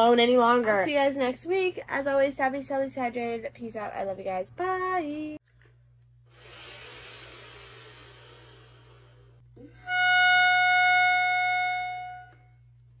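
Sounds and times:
bright held electronic note: 9.8s - 12.5s.

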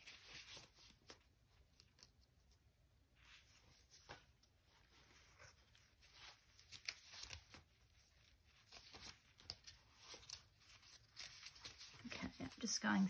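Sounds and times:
paper sheets rustling: 3.2s - 13.0s.

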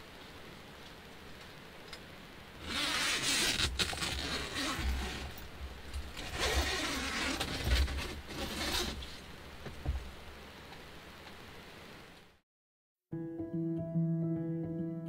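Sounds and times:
zipper rasping: 2.6s - 9.2s
tent fabric rustling: 2.6s - 10.2s.

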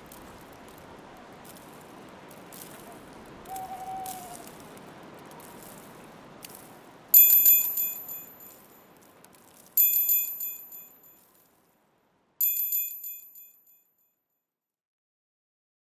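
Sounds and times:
soft background hiss: 0.0s - 13.7s
high bell chime: 7.2s - 8.8s, 9.8s - 11.2s, 12.4s - 13.8s.

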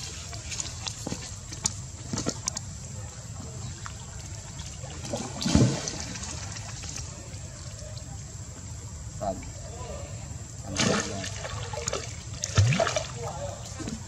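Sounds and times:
water sloshing and lapping: 0.0s - 8.1s, 10.7s - 14.0s
small splashes: 3.6s - 8.1s, 10.7s - 14.0s.

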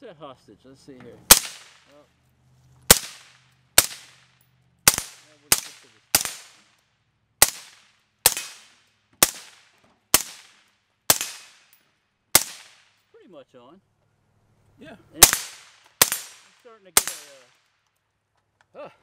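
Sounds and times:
suppressed rifle shots: 1.3s - 1.9s, 2.9s - 6.8s, 7.4s - 12.9s, 15.2s - 17.5s.

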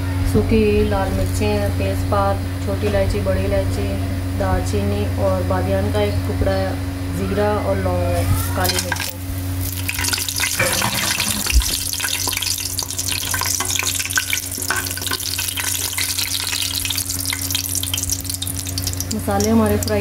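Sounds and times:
low hum: 0.0s - 20.0s
spices sizzling in hot oil: 8.6s - 20.0s
metal spoon stirring: 8.7s - 19.0s.

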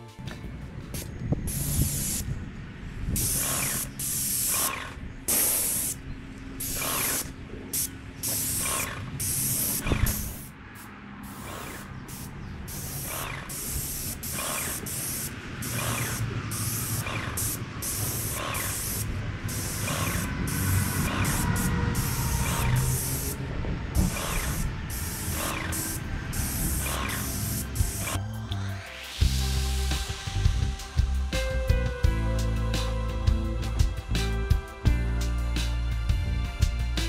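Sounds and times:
spray gun hissing: 1.5s - 2.3s, 3.2s - 6.0s, 6.6s - 28.2s.

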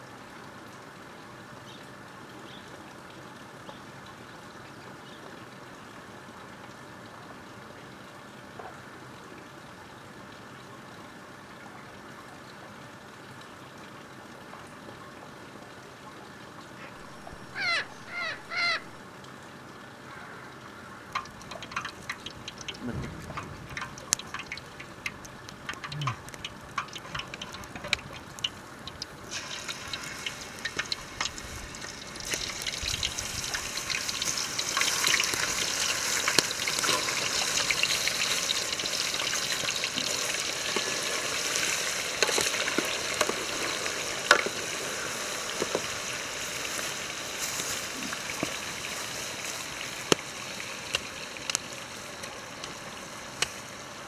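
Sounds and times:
burning wood crackling: 21.0s - 53.8s
chicken sizzling in hot oil: 21.1s - 54.0s.

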